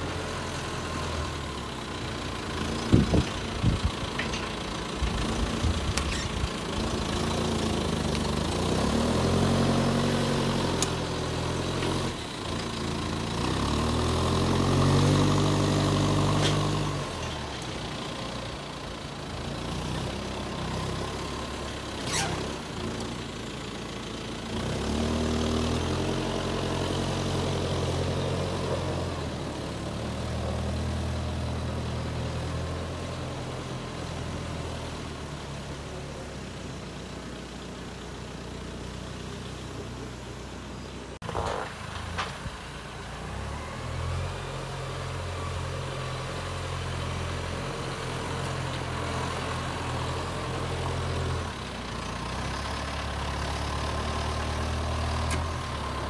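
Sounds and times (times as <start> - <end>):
tractor engine revving: 0.0 - 35.8.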